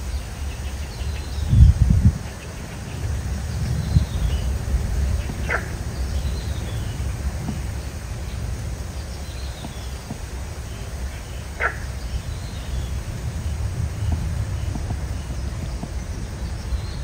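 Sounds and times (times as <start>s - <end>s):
low rumble: 2.9s - 17.0s
sharp animal calls: 5.1s - 7.6s, 9.6s - 13.0s.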